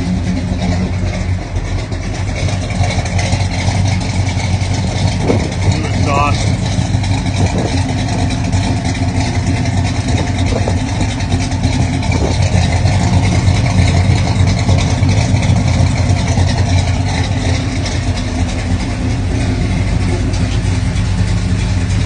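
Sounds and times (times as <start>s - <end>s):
car engine idling: 0.0s - 22.0s.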